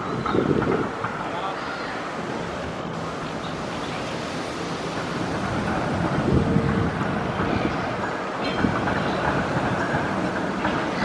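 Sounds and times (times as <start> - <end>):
wind on microphone: 0.0 - 1.0, 5.4 - 8.0
passing traffic rumble: 0.0 - 11.0.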